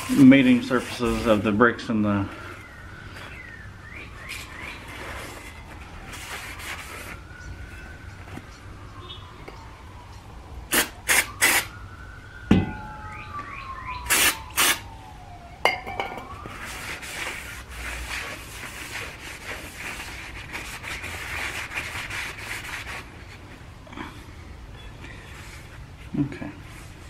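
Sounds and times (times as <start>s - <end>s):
siren wailing: 0.0s - 19.4s.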